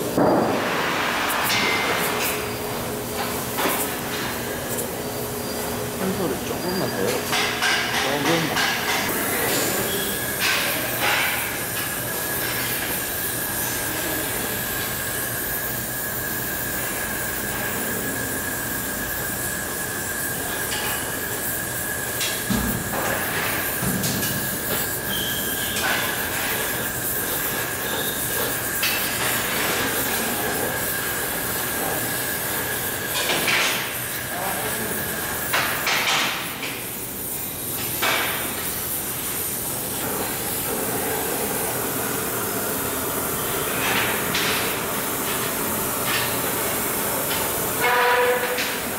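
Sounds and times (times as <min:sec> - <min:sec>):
welding torch hissing roar: 0:00.0 - 0:48.9
thin high whistle: 0:09.6 - 0:10.3, 0:24.4 - 0:26.2.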